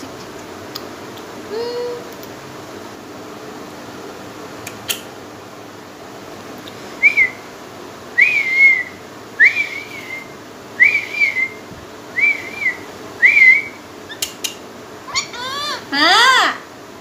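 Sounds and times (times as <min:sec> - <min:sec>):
parrot whistling: 0:12.2 - 0:14.2, 0:15.1 - 0:16.6.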